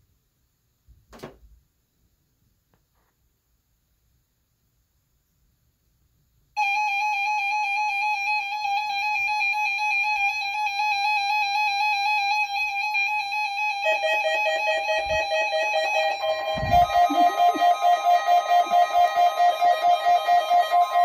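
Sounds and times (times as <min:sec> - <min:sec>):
warbling electronic alarm tone: 0:06.6 - 0:21.0.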